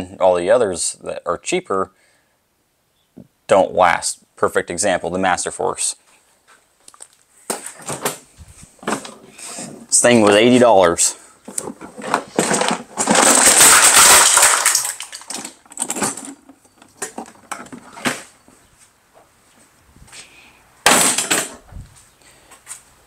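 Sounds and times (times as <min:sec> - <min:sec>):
broken plastic rattling in toolbox: 0:11.6 - 0:18.1.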